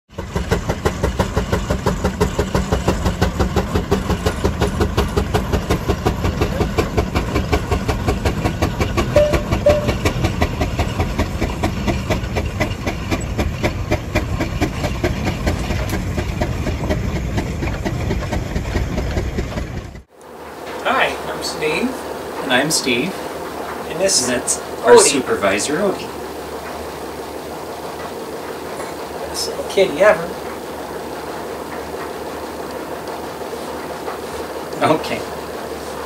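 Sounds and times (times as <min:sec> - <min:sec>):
steam engine exhaust chuffing: 0:00.1 - 0:36.0
steam hissing: 0:00.2 - 0:19.0, 0:20.4 - 0:36.0.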